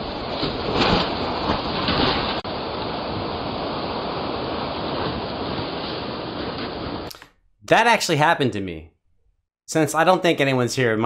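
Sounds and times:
storm wind buffeting microphone: 0.0s - 7.1s.

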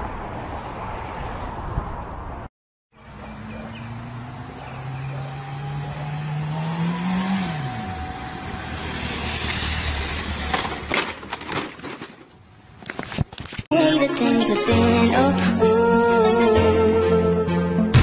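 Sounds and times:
motorcycle engine accelerating: 3.0s - 10.9s
sharp knocks and clatter: 9.4s - 12.4s.

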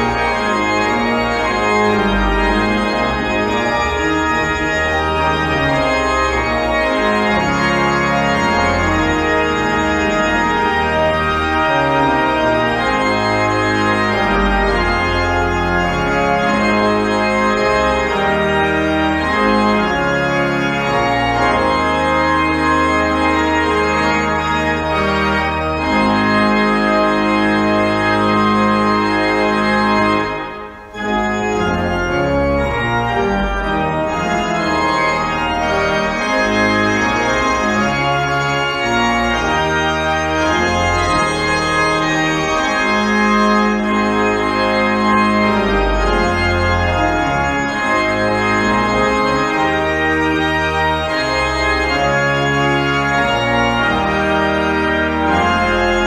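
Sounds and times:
pipe organ playing chords: 0.0s - 56.0s.

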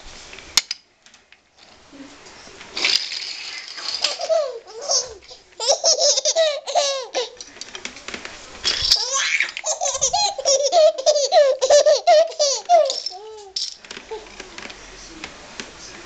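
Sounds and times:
baby giggling: 4.0s - 7.4s, 8.7s - 14.3s.

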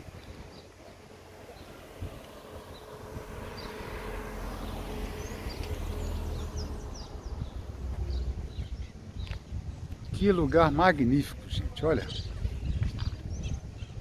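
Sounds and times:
low street rumble: 0.0s - 14.0s.

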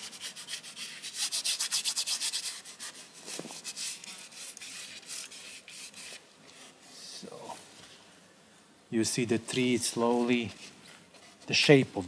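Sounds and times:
paintbrush scrubbing on canvas: 0.0s - 6.8s.

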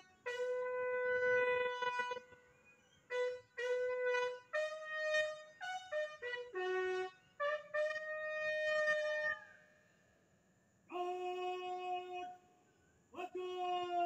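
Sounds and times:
bugle call: 0.0s - 9.6s.

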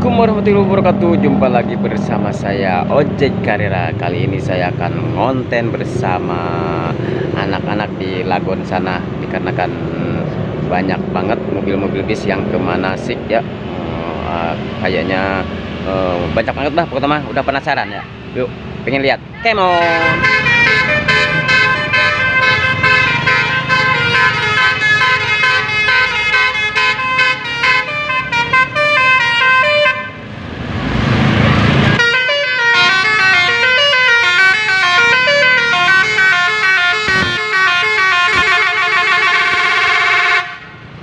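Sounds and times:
bus horns playing melody: 19.6s - 30.3s, 31.9s - 40.9s.

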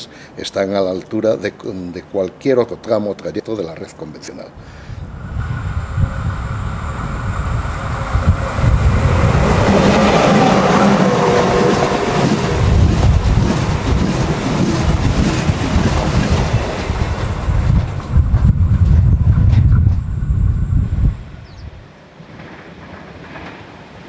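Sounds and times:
train wheels rumbling on rails: 5.1s - 21.2s, 22.2s - 24.0s.

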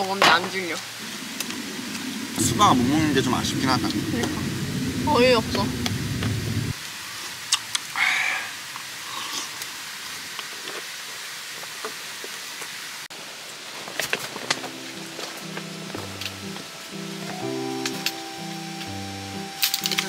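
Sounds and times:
waterfall rushing: 0.0s - 7.2s, 13.1s - 20.0s
background music: 14.5s - 20.0s.

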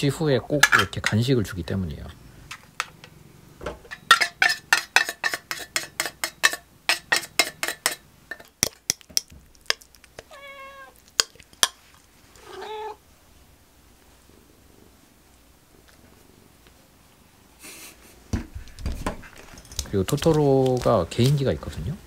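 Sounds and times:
metal spoon scraping a can: 3.9s - 9.0s
spoon tapping: 3.9s - 9.8s
cat meowing: 10.2s - 11.0s, 12.4s - 13.0s.

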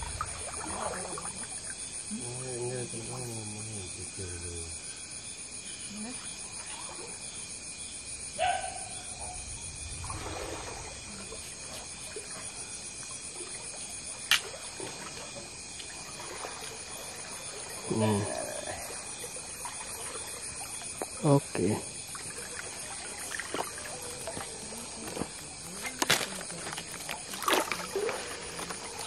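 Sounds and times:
feet wading through shallow water: 0.0s - 2.0s, 9.8s - 29.0s
water trickling and splashing: 0.0s - 8.3s, 9.0s - 29.0s
night insects chirring: 0.0s - 29.0s.

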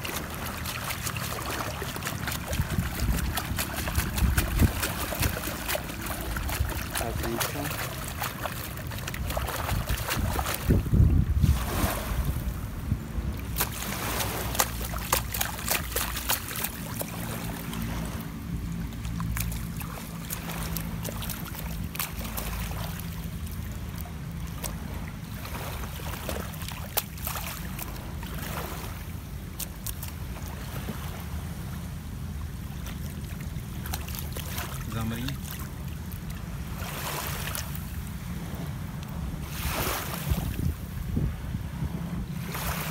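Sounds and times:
wind rumbling on microphone: 0.0s - 29.5s, 36.0s - 42.9s
shallow water splashing: 0.0s - 42.9s
small waves lapping: 0.0s - 42.9s.

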